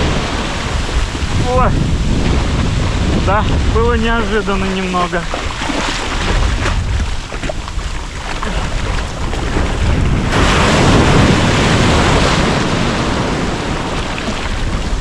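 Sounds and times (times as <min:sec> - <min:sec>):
sea surf washing: 0:00.0 - 0:15.0
wave crashing: 0:00.0 - 0:15.0.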